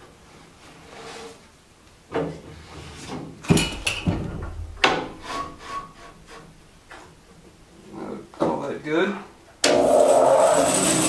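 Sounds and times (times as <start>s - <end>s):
scraping: 2.5s - 7.2s
heavy wooden thump: 3.5s - 5.2s.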